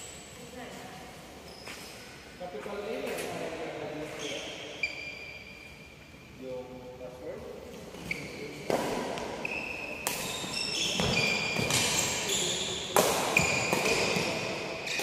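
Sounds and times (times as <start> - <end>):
sneakers squeaking on wooden floor: 1.4 - 3.4, 4.0 - 6.4, 7.7 - 15.0
racket striking shuttlecock: 10.0 - 12.0, 12.9 - 15.0.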